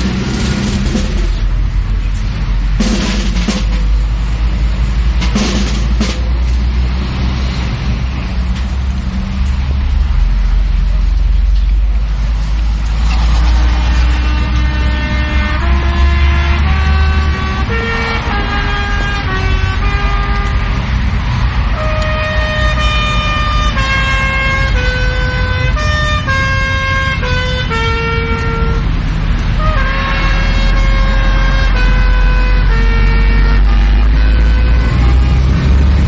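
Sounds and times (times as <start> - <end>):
steady low rumble: 0.0 - 7.0
solo brass slow melody: 14.0 - 20.8, 21.7 - 28.9, 29.6 - 36.0.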